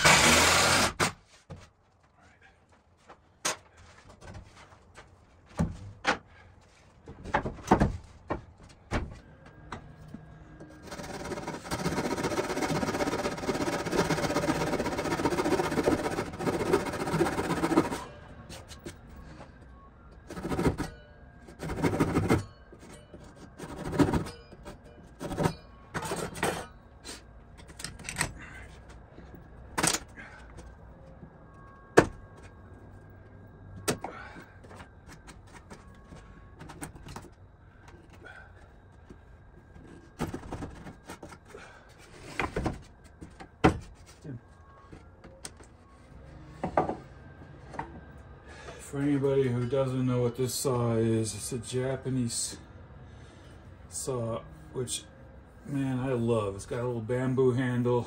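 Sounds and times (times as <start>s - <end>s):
power tool motor: 0.0s - 1.2s.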